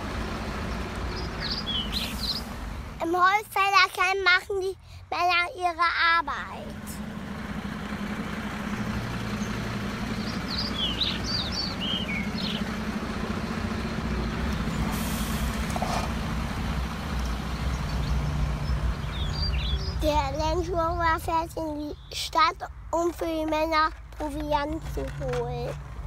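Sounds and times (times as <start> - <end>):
bird chirps: 0.6 - 2.6, 8.5 - 14.9, 17.2 - 20.5, 21.8 - 22.3
model truck engine idling: 6.7 - 17.9.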